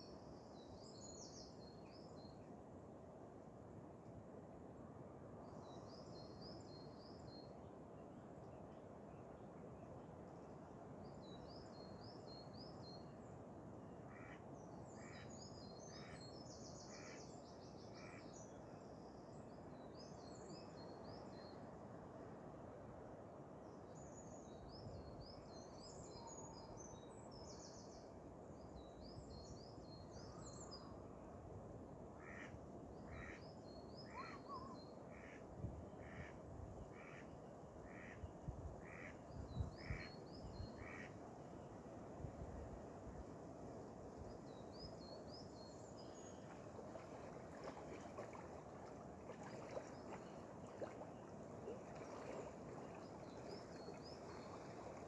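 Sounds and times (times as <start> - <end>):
faint birdsong twittering: 5.3 - 22.0, 23.6 - 31.5, 32.1 - 55.0
evenly spaced bird calls: 13.9 - 19.0, 32.2 - 41.8.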